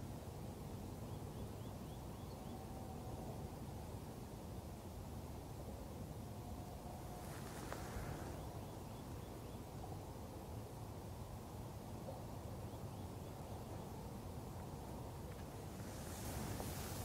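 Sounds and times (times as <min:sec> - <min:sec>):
low nature rush: 0:00.0 - 0:17.0.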